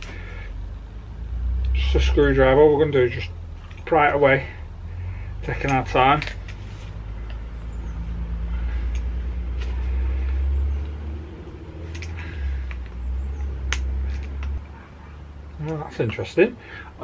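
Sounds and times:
vehicle engine rumble: 0.0 - 17.0.

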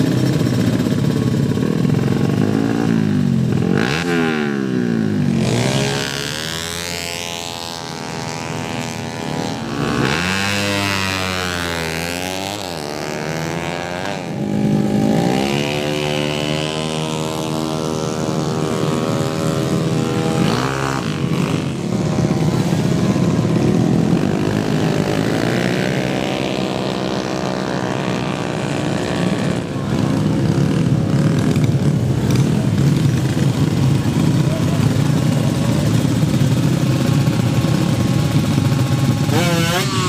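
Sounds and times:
motorcycle engines revving: 0.0 - 40.0.

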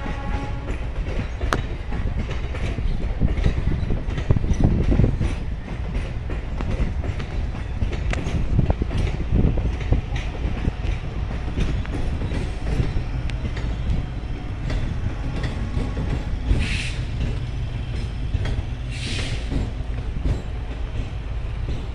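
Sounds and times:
train coaches rumbling past: 0.0 - 21.9
wheels clacking over rail joints: 0.0 - 21.9
short hisses: 18.9 - 19.5.

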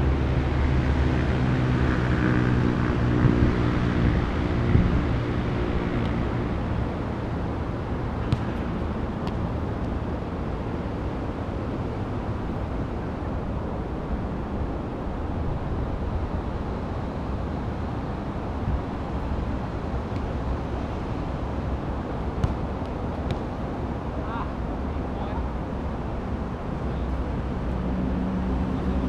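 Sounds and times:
wind rumbling on microphone: 0.0 - 22.4.

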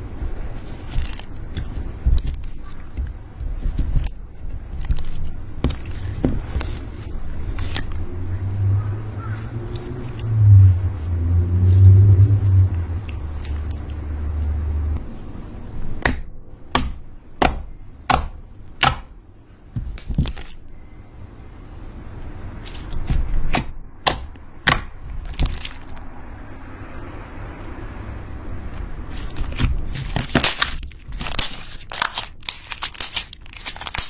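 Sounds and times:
slime being kneaded: 0.0 - 8.1, 9.2 - 14.6, 19.8 - 20.6, 22.5 - 26.0, 29.0 - 34.0.

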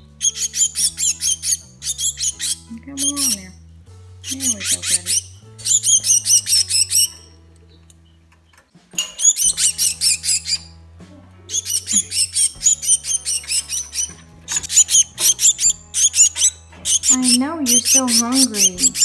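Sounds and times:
young bird begging calls: 0.2 - 3.6, 4.2 - 7.3, 9.2 - 10.7, 11.5 - 19.0.

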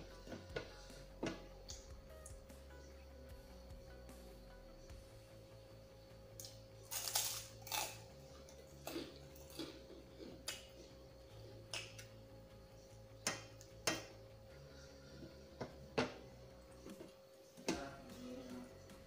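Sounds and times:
wet chewing: 6.4 - 10.7.

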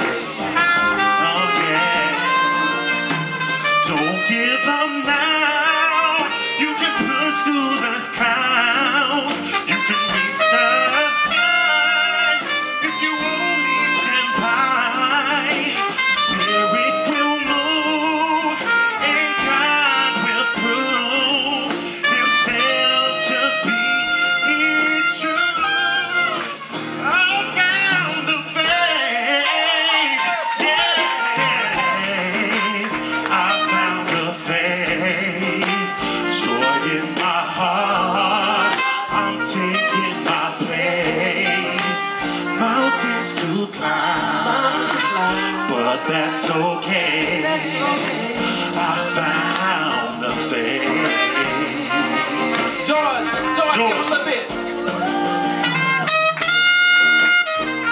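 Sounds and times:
drums: 0.0 - 11.6, 12.3 - 57.9
person singing: 0.0 - 53.6
guitar: 0.0 - 57.9
trumpet: 0.0 - 57.9.

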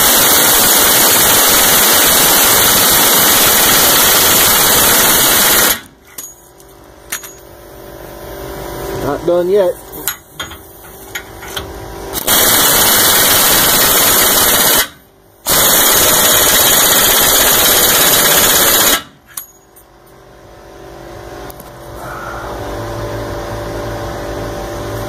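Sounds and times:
pneumatic impact wrench hammering: 0.0 - 6.5, 10.0 - 19.5.

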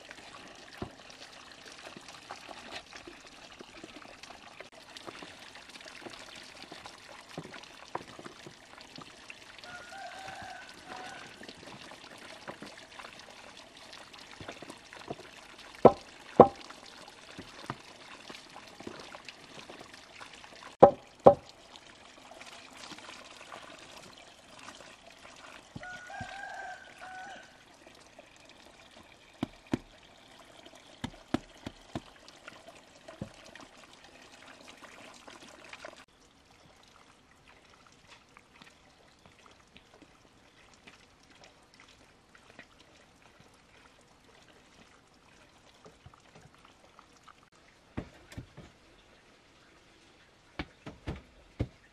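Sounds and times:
water pouring: 0.0 - 51.9
sharp knocks: 15.8 - 16.6, 20.8 - 21.4.

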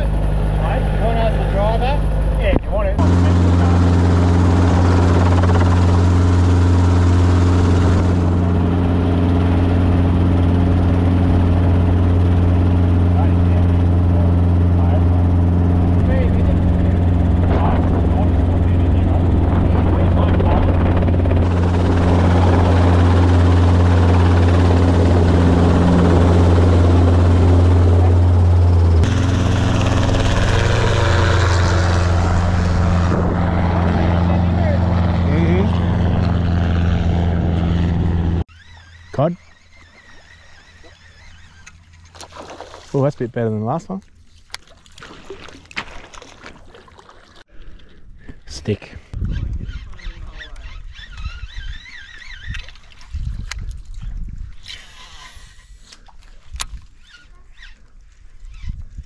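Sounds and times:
helicopter engine and rotor droning: 0.0 - 42.0.

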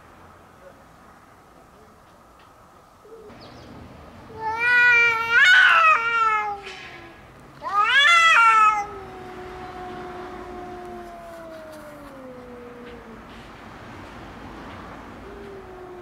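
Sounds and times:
cats yowling: 4.3 - 13.3, 15.1 - 16.0
low cat call sliding down: 8.4 - 13.3.

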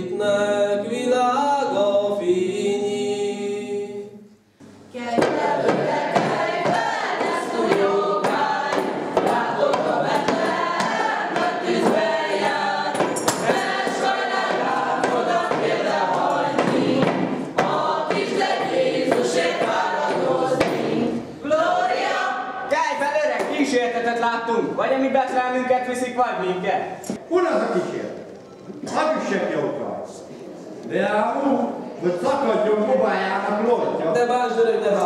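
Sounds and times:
young voices singing a hymn: 0.0 - 24.0.

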